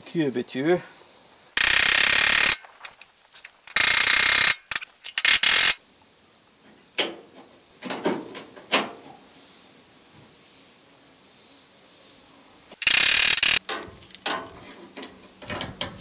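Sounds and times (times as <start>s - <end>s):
hand tools clicking on metal: 1.6s - 5.8s, 12.8s - 16.0s
harsh rasping noises: 1.6s - 5.8s.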